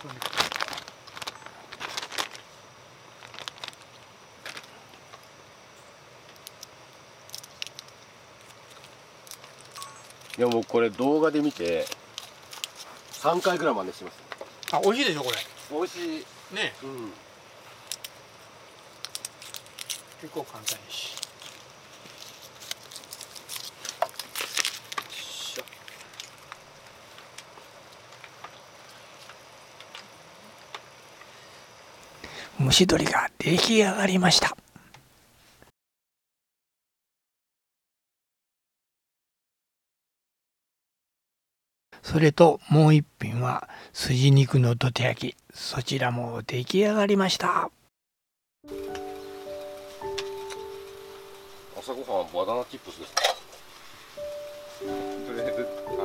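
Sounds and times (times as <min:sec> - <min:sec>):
gas stove burner hissing: 0:49.3 - 0:55.5
metal pot and lid clinking: 0:53.1 - 0:53.6.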